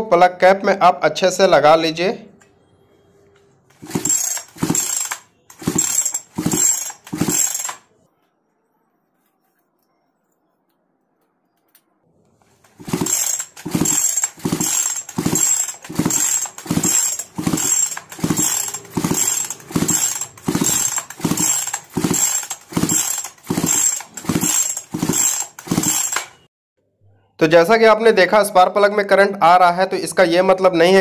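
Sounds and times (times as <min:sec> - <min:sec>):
chainsaw recoil starter pulls: 0:03.7 - 0:07.9, 0:12.6 - 0:26.5
engine turning over: 0:03.7 - 0:07.9, 0:12.5 - 0:26.5.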